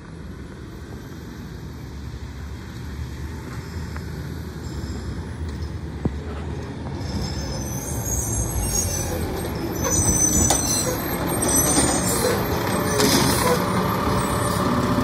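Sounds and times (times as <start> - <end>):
garbage truck engine: 6.4 - 15.0
high brake squeals: 7.0 - 14.8.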